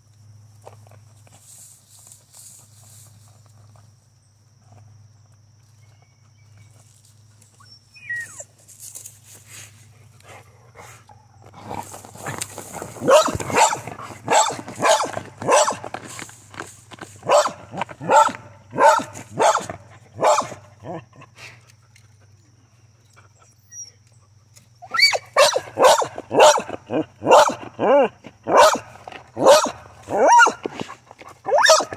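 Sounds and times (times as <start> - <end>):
dog scratching in dirt: 11.5 - 20.6
dog barking: 13.0 - 15.8, 17.2 - 21.0, 25.4 - 30.6, 31.5 - 31.9.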